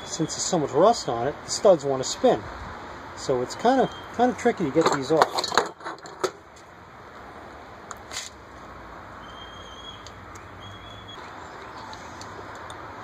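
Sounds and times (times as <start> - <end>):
faint high whistle-like tones: 0.0 - 1.3, 3.8 - 4.2, 9.2 - 12.2
low steady background noise: 0.0 - 13.0.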